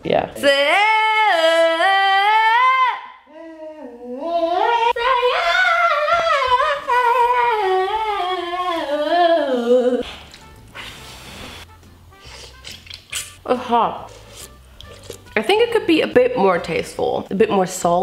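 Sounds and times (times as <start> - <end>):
woman singing wordless melody: 0.3 - 10.0.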